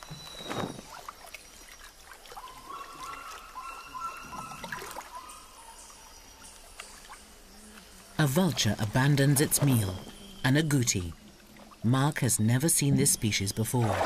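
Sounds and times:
whistled call: 0:00.0 - 0:01.3, 0:02.4 - 0:05.9
water trickling: 0:00.0 - 0:14.0
water splash: 0:13.6 - 0:14.0.

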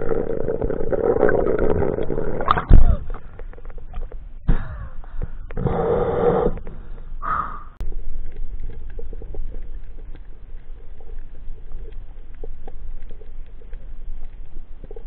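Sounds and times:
underwater low hum: 0:00.0 - 0:15.0
breathing through snorkel: 0:04.5 - 0:07.8
faint reef clicks: 0:06.5 - 0:15.0.

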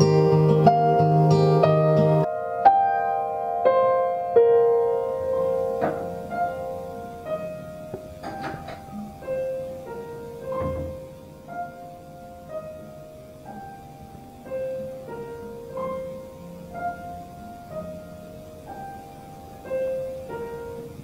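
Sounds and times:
slow piano notes: 0:00.0 - 0:21.0
low thump: 0:10.5 - 0:11.0.

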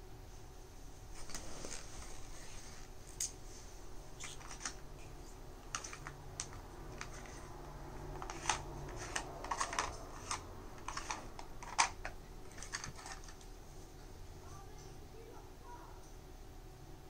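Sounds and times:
hard plastic parts clicking: 0:05.7 - 0:07.5, 0:08.1 - 0:13.4.

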